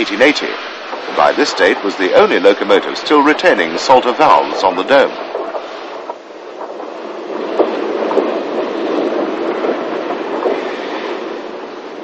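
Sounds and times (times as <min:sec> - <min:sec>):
steam locomotive rumbling: 0:00.0 - 0:12.0.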